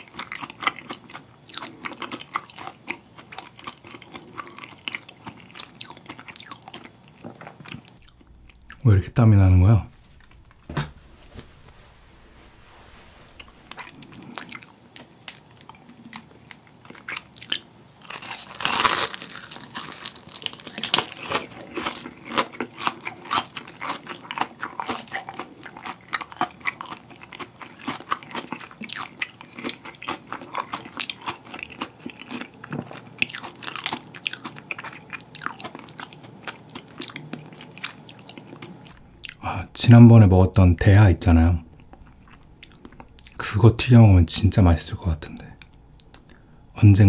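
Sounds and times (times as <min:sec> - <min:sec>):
crunchy food chewing: 0:00.0 - 0:08.9, 0:13.4 - 0:39.5, 0:41.7 - 0:43.6
crisp batter crackling: 0:01.9 - 0:47.0.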